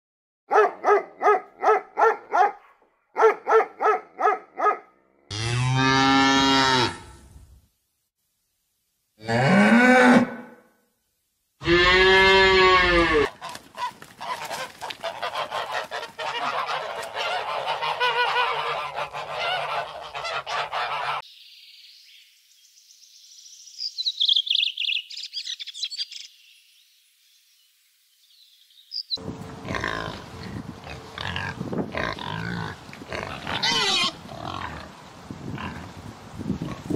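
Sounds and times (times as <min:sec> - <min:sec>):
cow mooing: 0:11.6 - 0:13.3
flock of birds honking: 0:13.4 - 0:21.2
high bird chirping: 0:23.5 - 0:26.7
pig grunting: 0:29.6 - 0:34.9.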